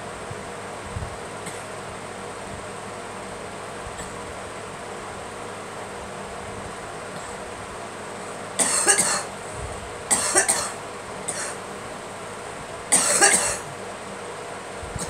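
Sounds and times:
woman coughing: 8.6s - 9.3s, 10.1s - 11.6s, 12.9s - 13.7s.

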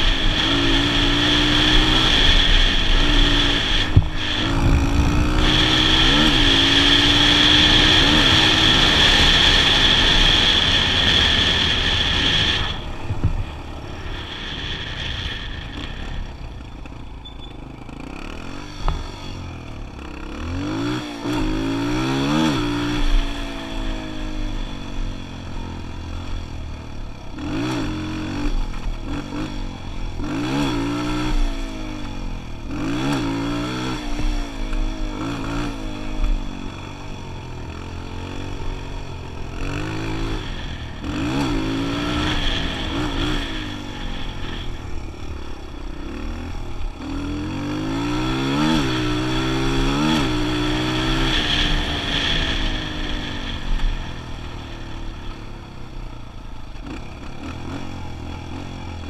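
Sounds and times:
wind rumble: 0.0s - 17.2s
dirt bike engine revving: 0.0s - 59.0s.

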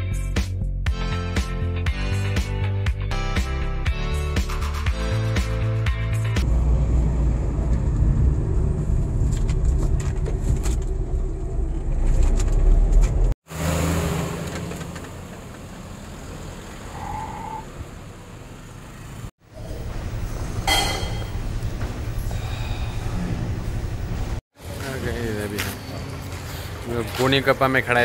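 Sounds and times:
car engine and road rumble: 6.4s - 28.0s.

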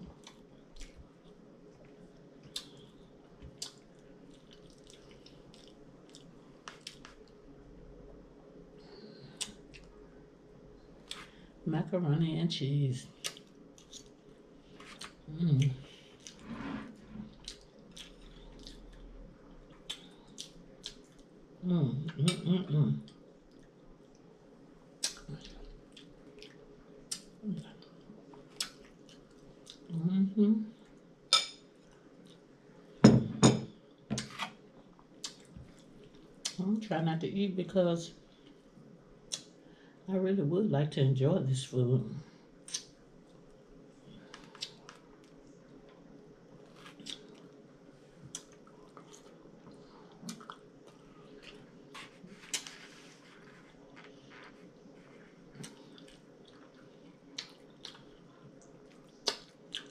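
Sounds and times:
chewing with wet mouth clicks: 0.2s - 7.4s, 13.2s - 14.2s, 17.3s - 21.3s, 25.0s - 29.9s, 35.0s - 36.6s, 39.3s - 39.6s, 44.3s - 45.4s, 46.8s - 47.6s, 48.2s - 51.7s, 55.5s - 59.9s.

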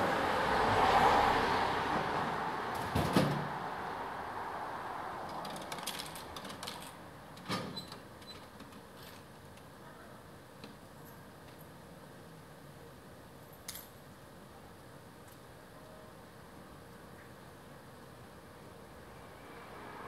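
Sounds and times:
car passing: 0.0s - 5.4s, 19.1s - 20.0s.

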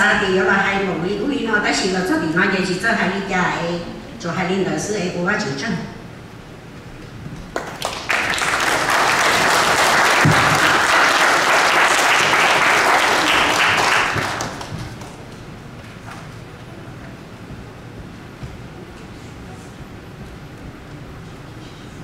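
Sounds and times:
audience applauding: 7.5s - 15.4s.

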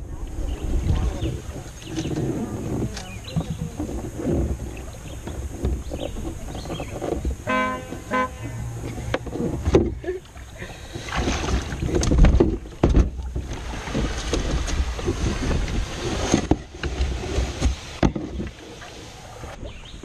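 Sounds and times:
wind on microphone: 0.0s - 10.1s, 11.0s - 20.0s
knocks and bumps on canoe: 0.7s - 19.7s
short honk-like tones: 7.4s - 8.8s.

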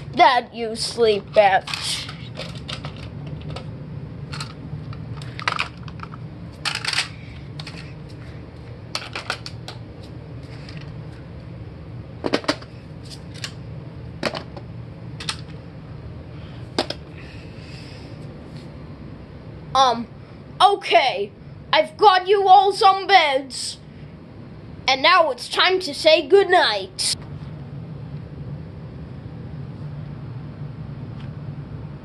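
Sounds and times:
steady low hum: 0.0s - 32.0s
plastic toys clicking and knocking: 6.7s - 7.8s.

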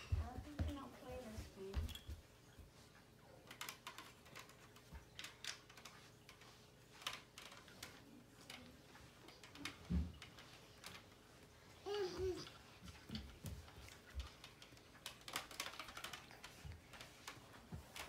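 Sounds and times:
toy pieces clicking and tapping: 12.0s - 17.4s.

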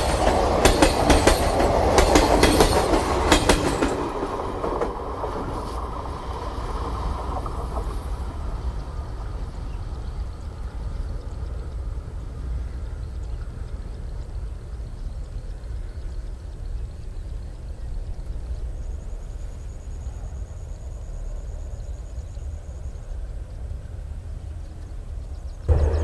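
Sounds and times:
train wheels clicking over rail joints: 0.0s - 9.9s
low train rumble: 0.0s - 26.0s.

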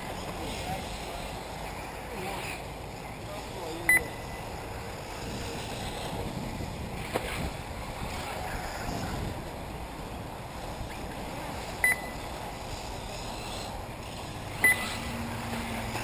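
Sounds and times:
wind buffeting microphone: 4.6s - 16.0s.

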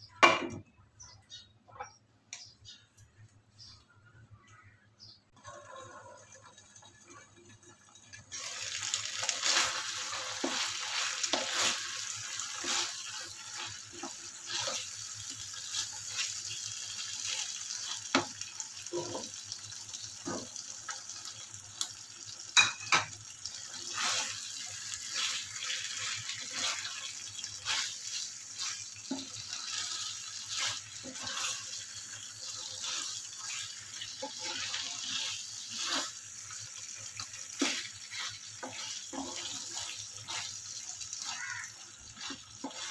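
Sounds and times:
food sizzling in frying pan: 5.4s - 42.9s
wooden spatula scraping pan: 9.2s - 14.9s, 23.9s - 31.9s, 32.5s - 36.2s, 37.5s - 40.6s, 42.1s - 42.9s.

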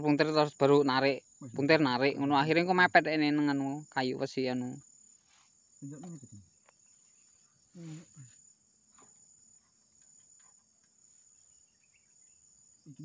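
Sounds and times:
insects buzzing: 0.0s - 13.0s
short vocal sounds: 5.8s - 6.4s, 7.8s - 8.3s.

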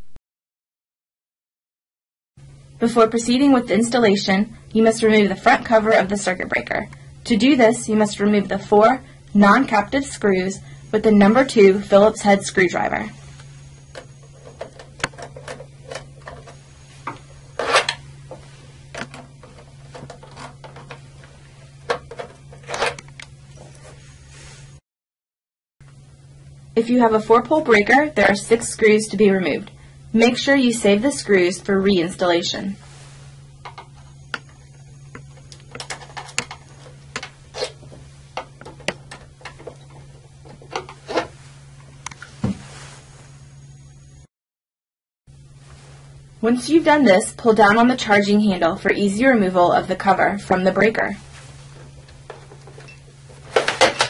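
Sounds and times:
steady low hum: 2.4s - 24.8s, 25.8s - 44.3s, 45.3s - 54.0s
screwdriver scraping: 14.3s - 18.0s, 19.0s - 21.0s
screwdriver clicking and scraping on plastic: 19.0s - 21.0s, 21.9s - 23.3s.

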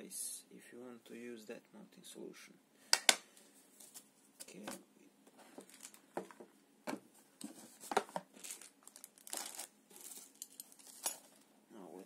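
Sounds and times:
cable rustling: 3.5s - 6.5s, 7.4s - 11.5s.

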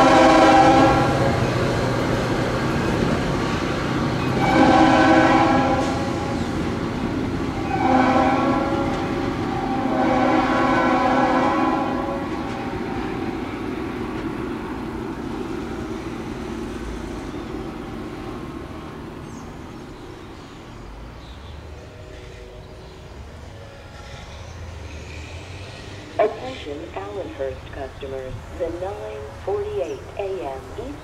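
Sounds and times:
locomotive horn: 0.0s - 1.6s, 4.2s - 6.8s, 7.5s - 13.7s
train running noise: 0.0s - 31.0s.

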